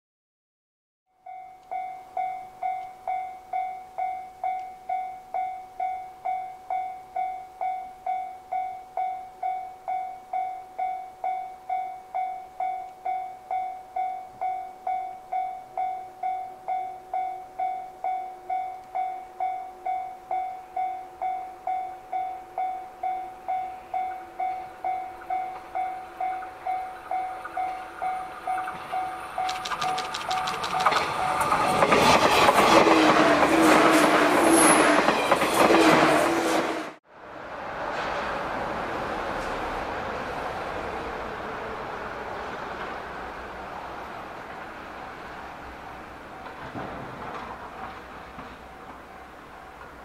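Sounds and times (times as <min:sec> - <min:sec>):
level crossing bell ringing: 0:01.2 - 0:31.4
electric train running: 0:18.9 - 0:36.8.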